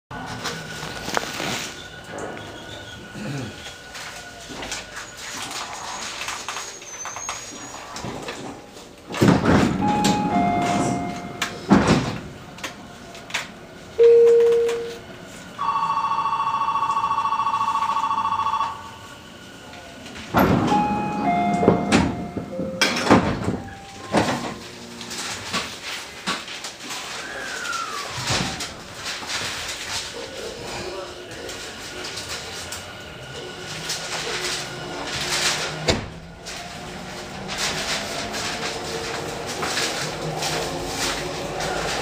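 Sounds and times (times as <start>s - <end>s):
brief beep: 9.8s - 11.5s, 14.0s - 15.0s, 20.7s - 22.9s
falling two-note door chime: 9.8s - 11.6s, 20.7s - 24.2s
sliding door mechanism: 33.6s - 42.0s.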